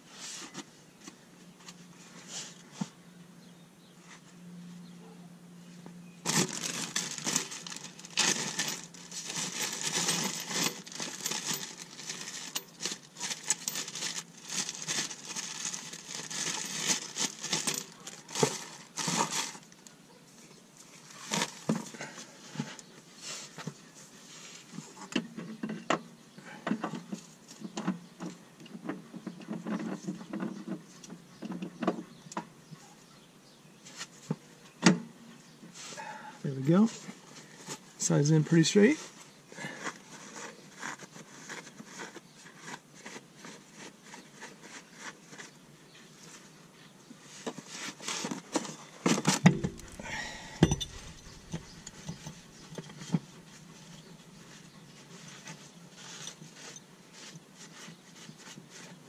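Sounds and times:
towel crinkling and rustling: 6.2 - 19.8, 47.3 - 57.9
metal parts clicking and tapping: 49.4 - 53.0.

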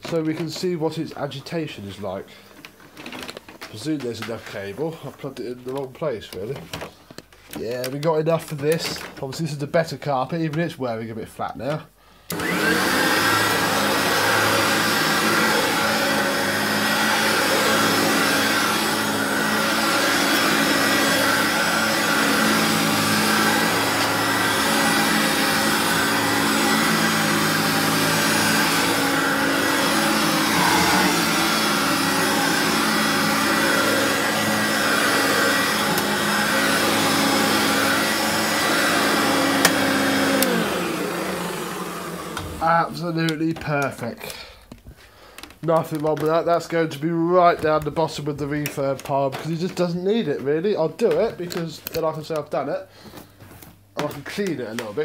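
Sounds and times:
vacuum cleaner running: 12.3 - 43.6
beater brush on carpet: 12.4 - 42.3.

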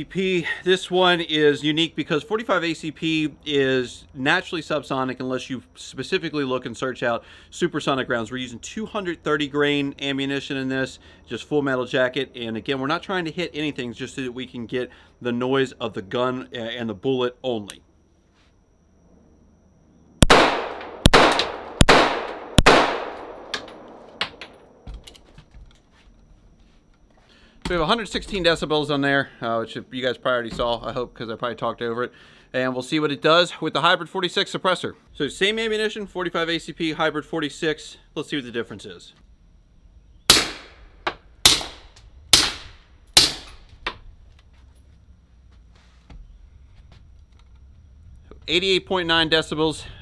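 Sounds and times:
pistol shots with echo: 20.2 - 24.4, 40.3 - 40.8, 41.4 - 43.6.

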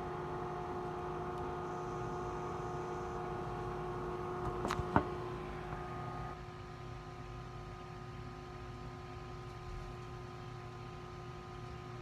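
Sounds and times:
microwave oven humming: 0.0 - 12.0
phone knocks: 4.5 - 5.2.

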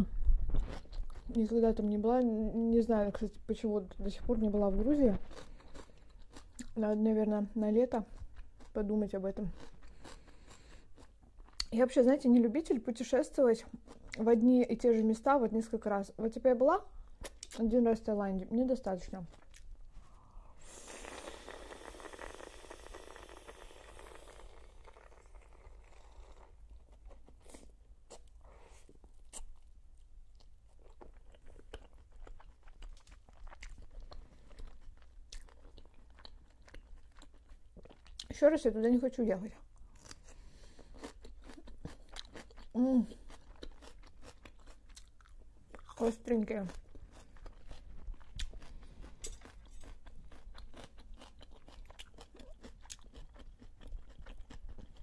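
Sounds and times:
wet chewing with crunches: 4.8 - 6.8, 9.4 - 11.8, 21.1 - 38.3, 39.8 - 55.0
wet mouth clicks: 17.2 - 17.6.

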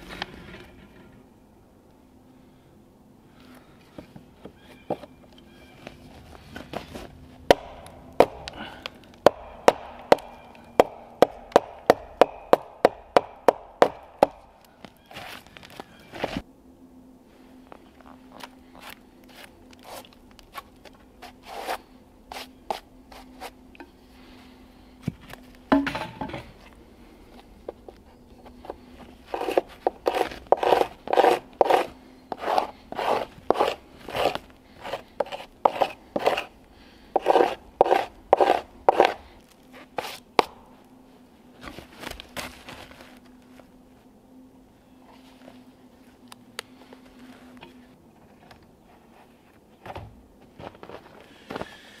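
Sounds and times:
blade chopping wood: 7.5 - 14.5, 29.3 - 36.5, 37.2 - 39.2, 40.0 - 40.6.

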